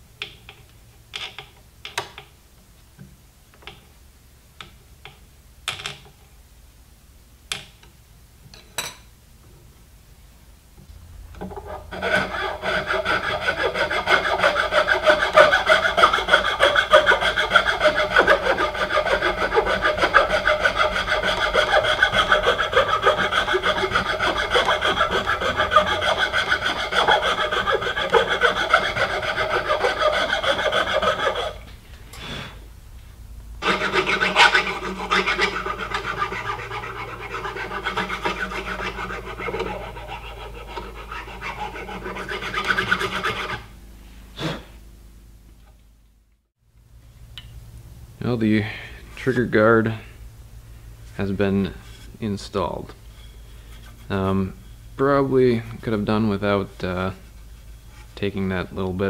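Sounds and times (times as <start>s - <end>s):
hand file rasping on wood: 11.4s - 31.6s, 33.6s - 43.7s.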